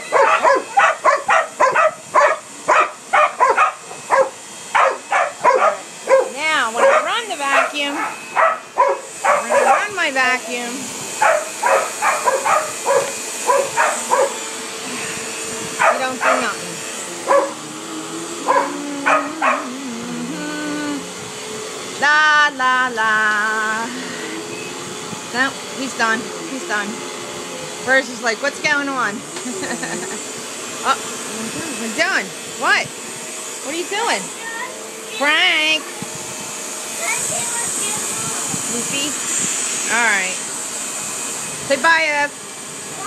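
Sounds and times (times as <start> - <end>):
vacuum cleaner humming: 0.0 - 43.0
dog barking: 0.1 - 9.9, 11.2 - 14.4, 15.8 - 16.6, 17.3 - 17.6, 18.5 - 19.7.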